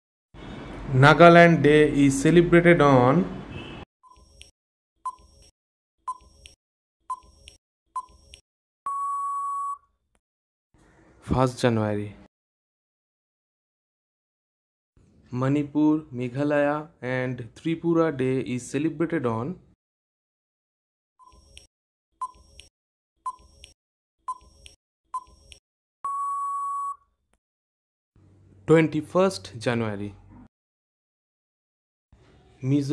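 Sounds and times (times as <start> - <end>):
short electronic beeps: 5.1 - 5.5, 7.1 - 8.3, 8.9 - 9.8, 22.2 - 22.6, 23.3 - 23.7, 25.2 - 27.0
long held beep: 8.9 - 9.8, 26.0 - 27.0.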